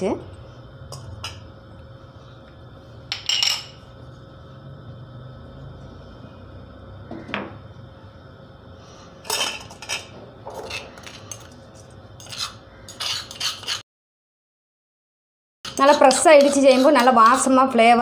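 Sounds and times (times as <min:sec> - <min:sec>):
faint steady hum: 0:00.0 - 0:13.1
metal spoon scraping stone mortar: 0:09.3 - 0:13.8, 0:15.7 - 0:18.0.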